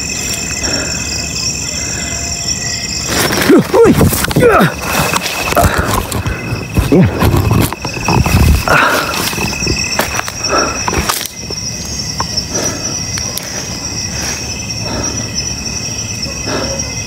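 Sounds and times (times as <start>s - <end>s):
night insects chirring: 0.0s - 17.0s
handling rustling and knocks: 3.1s - 11.6s.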